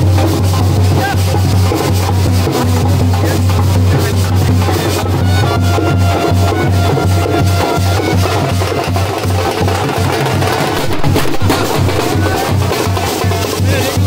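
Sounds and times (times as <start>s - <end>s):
barrel drum beaten with sticks: 0.0s - 14.0s
heavy pulsing bass: 10.1s - 13.0s.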